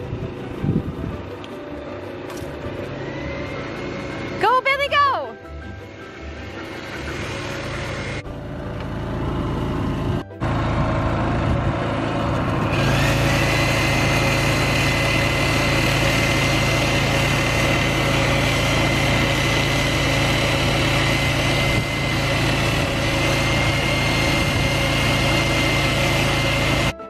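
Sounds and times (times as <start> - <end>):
generator engine droning: 0.0 - 27.0
power drill boring into wood: 12.4 - 27.0.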